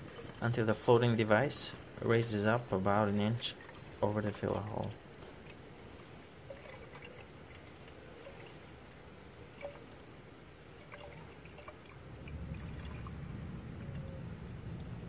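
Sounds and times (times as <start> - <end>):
liquid trickling into a tank: 0.0 - 15.0
low rumble: 12.1 - 15.0.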